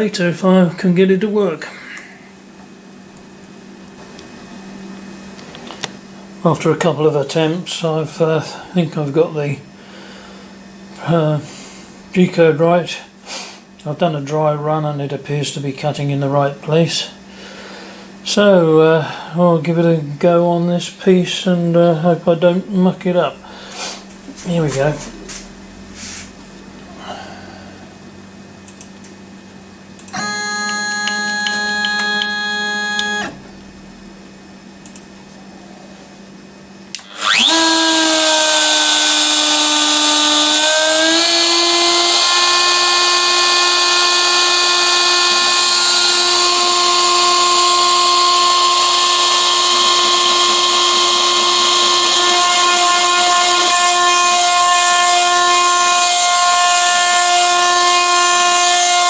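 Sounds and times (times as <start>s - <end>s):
steady machine whine: 0.0s - 59.0s
router high whine cutting: 30.0s - 34.1s, 37.0s - 59.0s.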